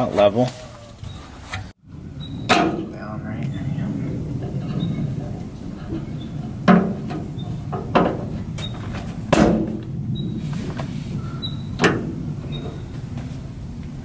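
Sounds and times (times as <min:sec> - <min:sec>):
sharp metallic knocks: 0:02.3 - 0:03.1, 0:04.4 - 0:09.9, 0:11.8 - 0:13.1.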